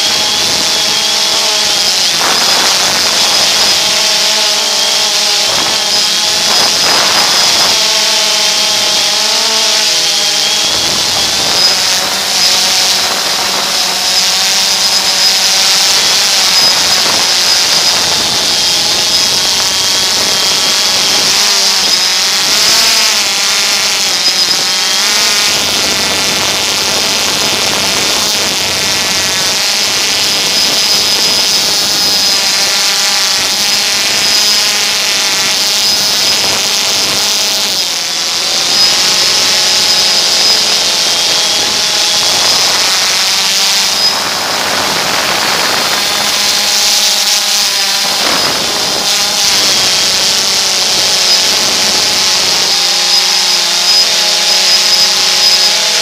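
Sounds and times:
drone motors and propellers whining: 0.0s - 56.0s.

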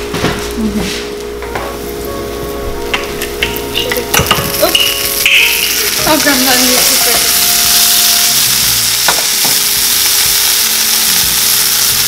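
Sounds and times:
patties sizzling in oil: 3.4s - 12.0s.

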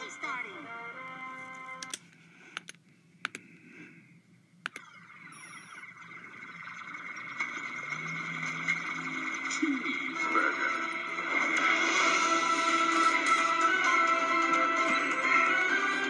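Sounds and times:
computer mouse clicks: 1.8s - 3.5s, 4.6s - 4.9s.

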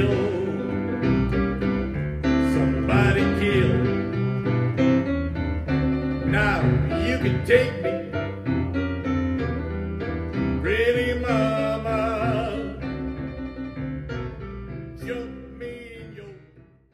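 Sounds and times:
person singing: 0.0s - 1.3s, 2.4s - 4.2s, 6.2s - 8.4s, 10.6s - 13.0s, 15.0s - 16.6s
boogie-woogie blues piano: 0.0s - 16.9s.

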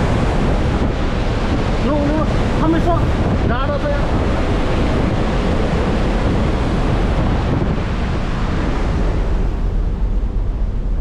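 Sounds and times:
sea rushing: 0.0s - 11.0s
wind buffeting microphone: 0.0s - 11.0s.

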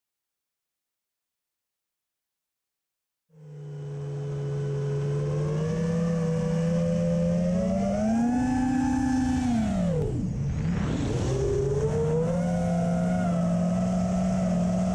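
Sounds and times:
drone motors whining: 3.4s - 14.9s.

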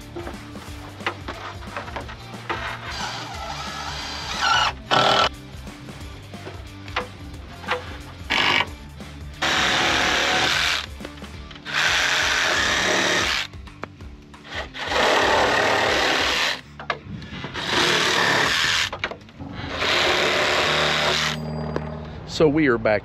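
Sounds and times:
cordless drill driving screws into wood: 3.0s - 5.3s, 8.3s - 8.7s, 9.4s - 10.9s, 11.6s - 13.5s, 14.4s - 16.6s, 17.4s - 21.4s.

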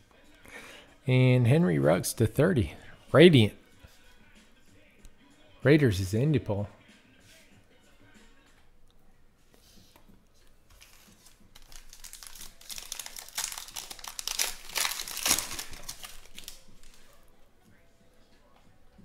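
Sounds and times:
plastic wrapper tearing and crinkling: 10.7s - 17.2s.

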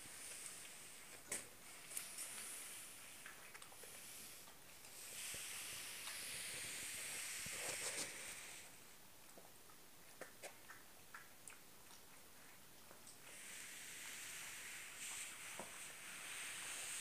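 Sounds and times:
steady hiss: 0.0s - 9.0s, 13.2s - 17.0s.

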